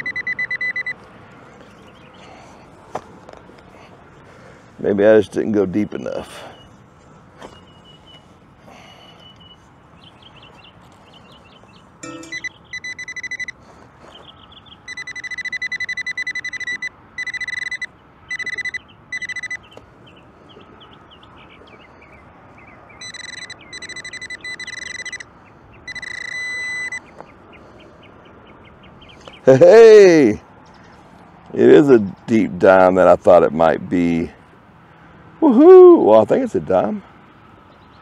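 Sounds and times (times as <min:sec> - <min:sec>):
metal detector beeping: 0:00.0 - 0:01.0, 0:12.0 - 0:13.6, 0:14.8 - 0:19.8, 0:23.0 - 0:25.3, 0:25.9 - 0:27.1.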